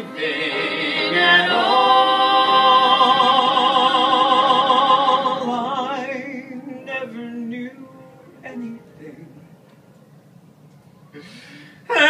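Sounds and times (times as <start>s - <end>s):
man and woman singing duet: 0.0s - 9.6s
piano accompaniment: 0.0s - 11.2s.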